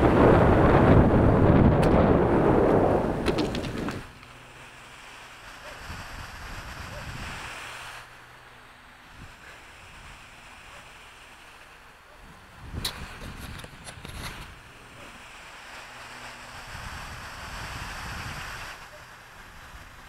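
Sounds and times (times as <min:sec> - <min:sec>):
wind buffeting microphone: 0:00.0 - 0:04.2, 0:05.5 - 0:07.8, 0:12.1 - 0:20.0
churning water rushing: 0:00.0 - 0:13.4, 0:14.3 - 0:20.0.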